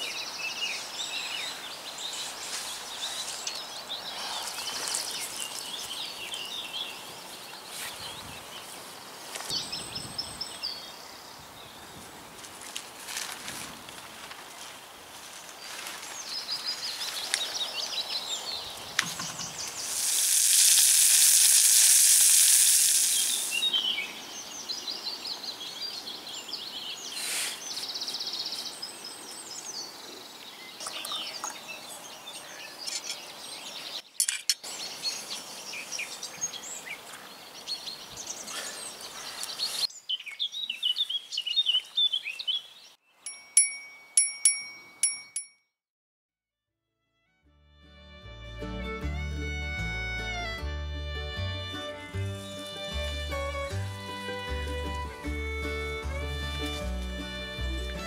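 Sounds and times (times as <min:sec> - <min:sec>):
songbirds singing: 0:00.0 - 0:12.0, 0:15.6 - 0:20.0, 0:23.1 - 0:43.4
loud sizzling hiss: 0:19.1 - 0:24.2.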